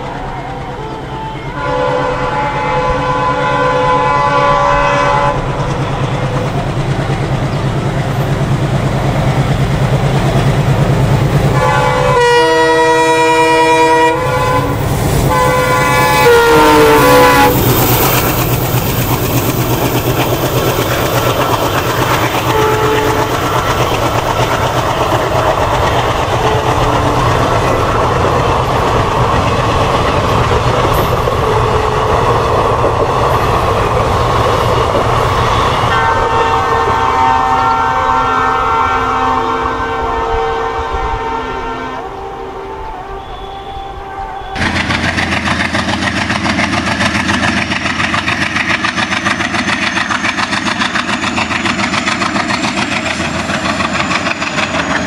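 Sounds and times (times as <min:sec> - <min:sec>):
train horn: 0:00.0 - 0:06.7, 0:11.5 - 0:18.4, 0:20.8 - 0:29.4, 0:30.8 - 0:32.7, 0:35.3 - 0:44.8
diesel locomotive engine chugging: 0:00.0 - 0:55.0
wheels rolling on track: 0:17.1 - 0:35.9.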